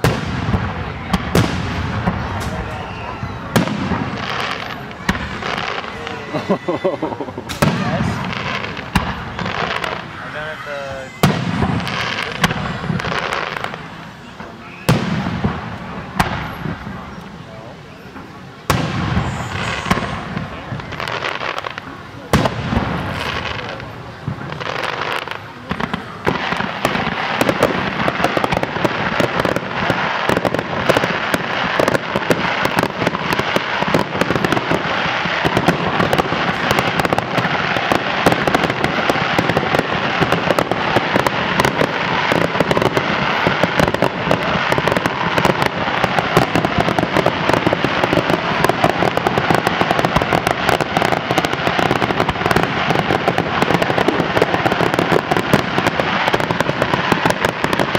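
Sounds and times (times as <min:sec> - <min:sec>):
crackle of firework pops: 0:00.0 - 0:05.8, 0:07.4 - 0:10.0, 0:14.4 - 0:17.3
firework bangs: 0:00.0 - 0:57.9.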